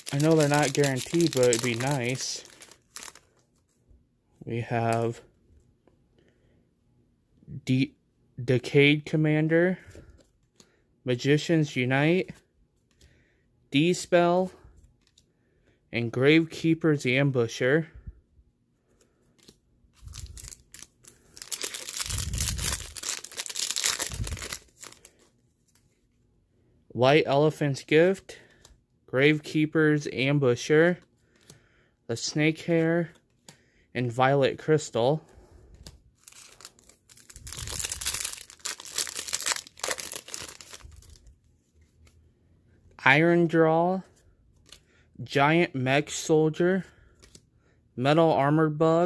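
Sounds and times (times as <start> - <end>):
foil wrapper crinkling and tearing: 0.0 - 3.4, 20.0 - 25.2, 36.2 - 41.3.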